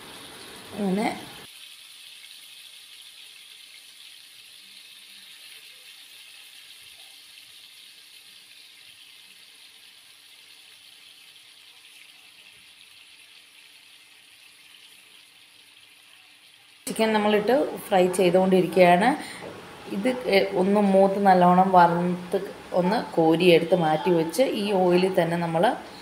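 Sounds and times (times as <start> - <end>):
chicken sizzling in hot oil: 0.0 - 18.4.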